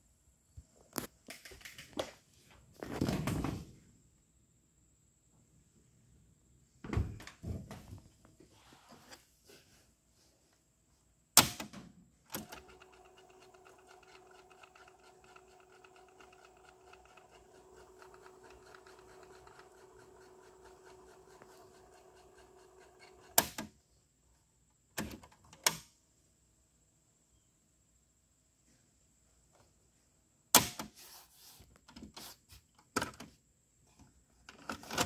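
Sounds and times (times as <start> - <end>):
tape mechanism whine: 12.3 - 23.6.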